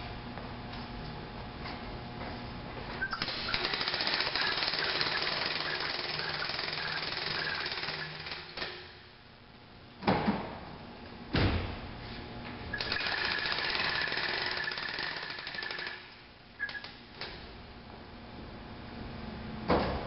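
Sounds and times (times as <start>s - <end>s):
mechanical rattle with high whine: 3.0s - 9.3s, 12.7s - 17.2s.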